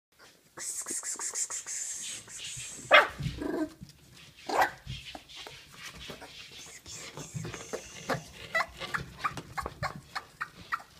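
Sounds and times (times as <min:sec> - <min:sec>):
scuffling and rustling: 0:02.1 - 0:10.9
puppies yelping: 0:07.0 - 0:10.9.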